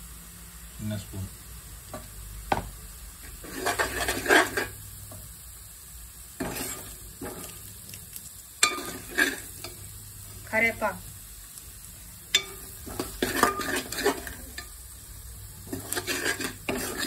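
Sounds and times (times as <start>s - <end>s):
light sizzle of frying: 0.0s - 17.0s
metal ladle scraping pot: 3.4s - 4.8s, 6.4s - 7.5s, 8.6s - 9.8s, 12.3s - 14.7s, 15.6s - 17.0s.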